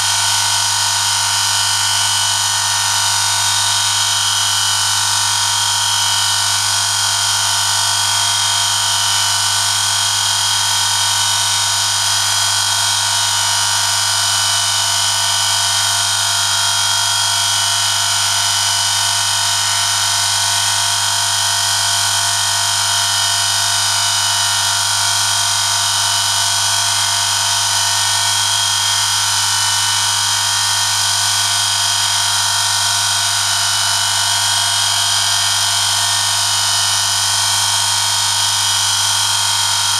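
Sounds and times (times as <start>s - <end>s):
electric motor hum: 0.0s - 4.4s.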